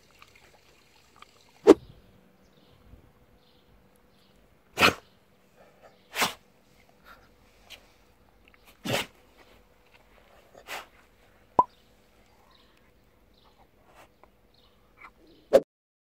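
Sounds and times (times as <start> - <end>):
dog sneezing: 4.8 - 5.0, 6.1 - 6.4, 8.8 - 9.2, 10.6 - 10.9
dog snuffles: 4.8 - 5.0, 6.1 - 6.4, 8.7 - 9.2, 10.6 - 10.9.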